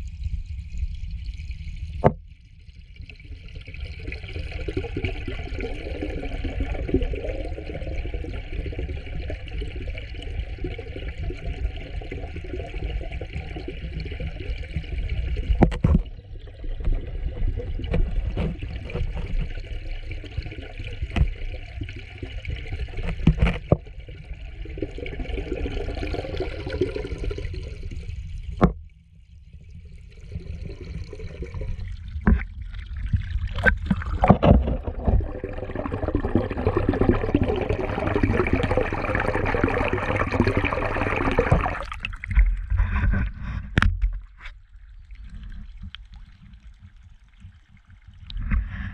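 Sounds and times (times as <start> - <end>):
muffled underwater rush: 0.0 - 48.9
air bubbles churning: 1.2 - 28.8, 29.6 - 43.8
underwater knocks: 2.0 - 2.2, 15.4 - 19.7, 20.4 - 21.4, 22.9 - 23.9, 28.5 - 28.9, 32.2 - 39.1, 40.4 - 44.5.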